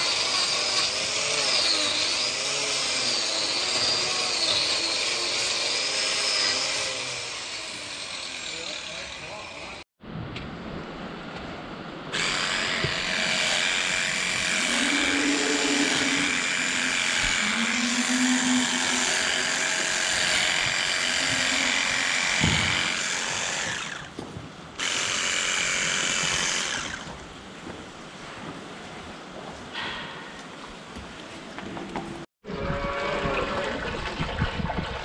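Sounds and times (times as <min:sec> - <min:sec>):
electric clippers running: 0:12.2 - 0:24.1, 0:24.8 - 0:27.1.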